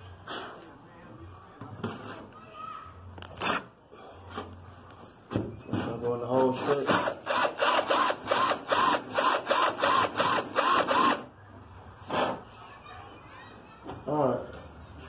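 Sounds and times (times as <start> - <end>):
cordless drill boring fiberglass: 6.9 - 11.2.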